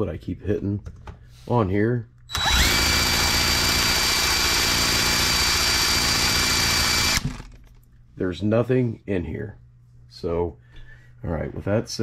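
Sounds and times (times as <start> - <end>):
cordless drill whining: 2.3 - 7.5.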